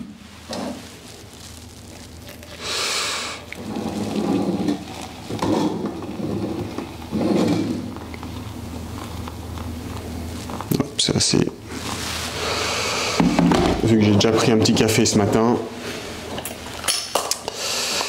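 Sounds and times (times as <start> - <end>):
boiling water pouring: 0.1 - 11.1.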